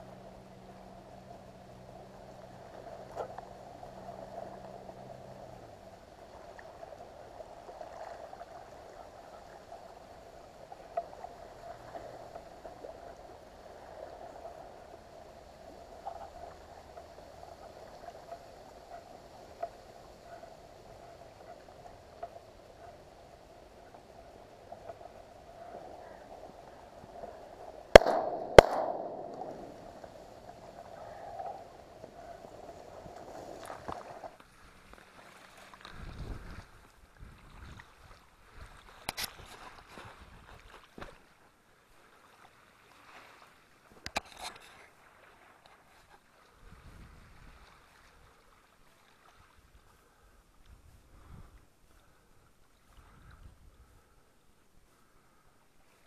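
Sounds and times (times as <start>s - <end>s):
faint wash of water: 0.0s - 56.0s
shotgun shots with echo: 27.9s - 29.8s.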